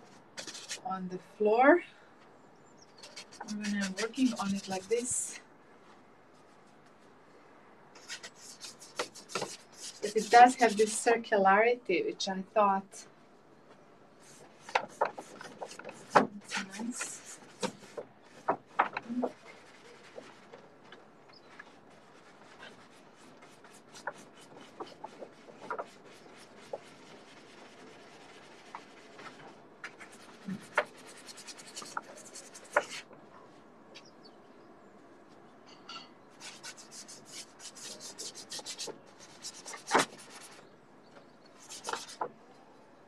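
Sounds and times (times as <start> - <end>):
paintbrush scrubbing on canvas: 3.0 - 5.3, 8.0 - 11.1, 14.2 - 20.6, 21.4 - 33.1, 36.4 - 40.6.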